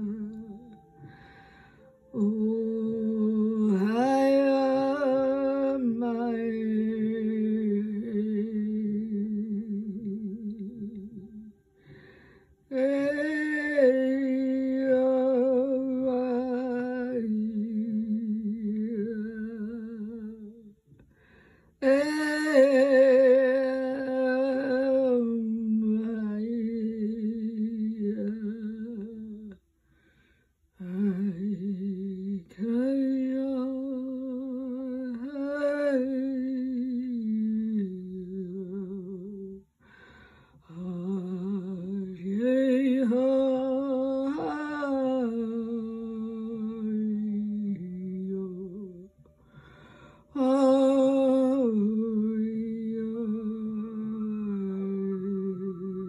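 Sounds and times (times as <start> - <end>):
woman humming: 43.2 - 48.9.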